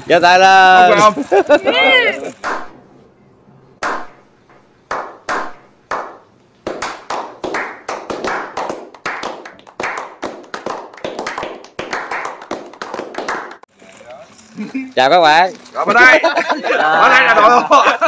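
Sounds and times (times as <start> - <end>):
single hand claps: 2.4 - 2.7, 3.8 - 4.1, 4.9 - 13.6
group of people clapping: 4.9 - 13.7.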